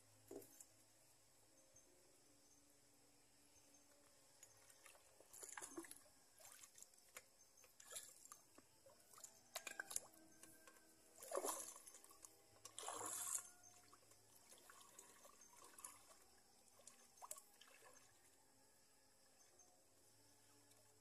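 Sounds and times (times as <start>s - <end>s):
water splashing and trickling: 4.3s - 18.6s.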